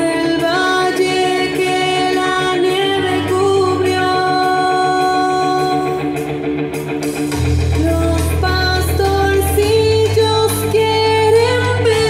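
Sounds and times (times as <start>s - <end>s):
show music with singing: 0.0s - 12.0s
deep bass: 7.3s - 12.0s.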